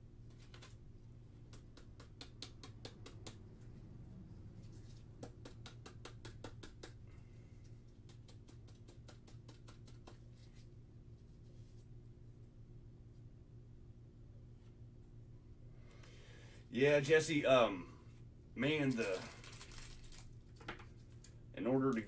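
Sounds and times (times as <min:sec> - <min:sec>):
low steady hum: 0:00.0 - 0:22.0
plastic card sleeves crinkling: 0:00.3 - 0:00.8, 0:18.6 - 0:22.0.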